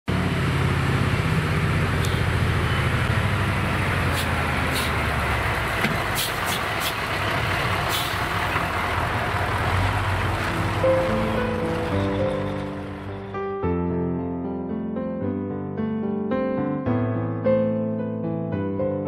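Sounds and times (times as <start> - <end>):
diesel truck engine drone: 0.1 - 13.4.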